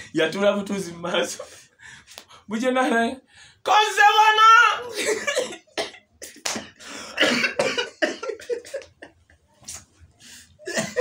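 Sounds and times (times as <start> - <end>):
men laughing hard: 4.9 - 9.5, 10.6 - 11.0
breathy gasps: 6.8 - 7.2.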